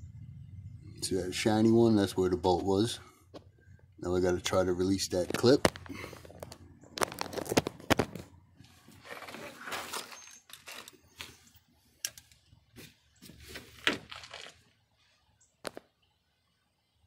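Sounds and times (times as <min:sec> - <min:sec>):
rustling and scraping: 0:05.1 - 0:14.8.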